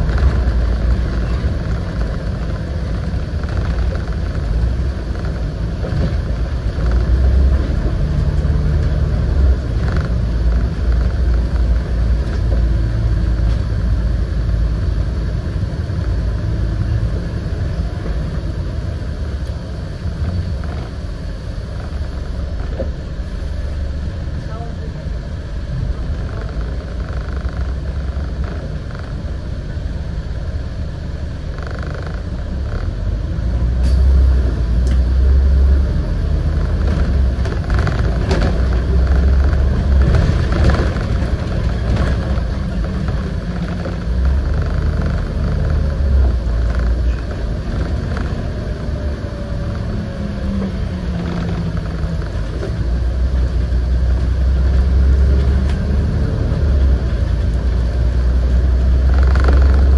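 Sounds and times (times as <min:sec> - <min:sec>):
rattles and clicks: 0:00.0 - 0:14.8, 0:25.9 - 0:29.9, 0:34.8 - 0:59.9
bus engine droning: 0:00.0 - 0:59.9.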